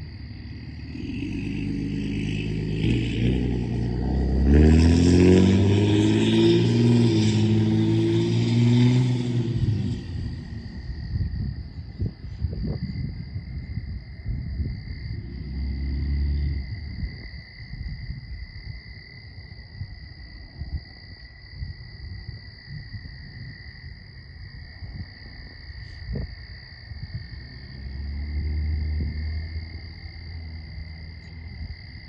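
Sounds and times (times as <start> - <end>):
insects calling: 0.0 - 32.0
low rumble: 6.8 - 21.0.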